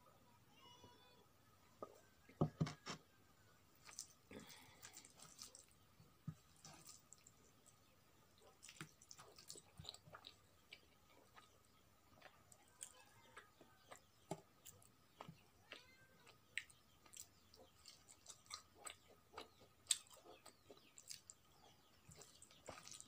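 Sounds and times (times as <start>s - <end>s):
person chewing: 3.8s - 7.8s, 8.4s - 11.6s, 12.2s - 21.4s, 22.0s - 23.0s.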